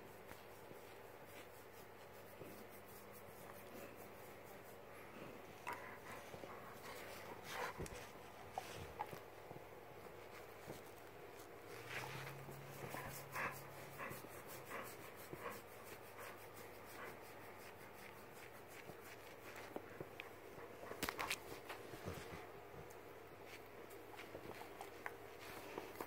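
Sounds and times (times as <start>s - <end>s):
dog panting: 0.2s - 9.4s, 10.2s - 23.0s.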